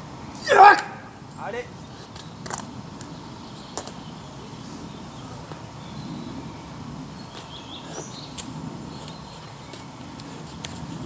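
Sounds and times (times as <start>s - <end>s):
steady background hiss: 0.0s - 11.0s
bird chirps: 1.2s - 10.8s.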